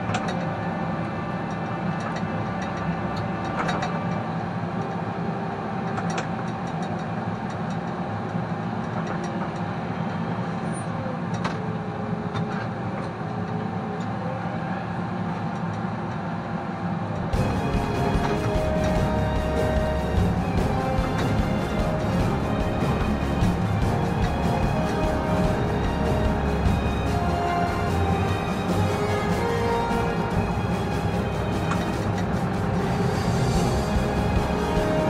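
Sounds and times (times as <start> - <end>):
tractor diesel engine running: 17.2 - 35.0.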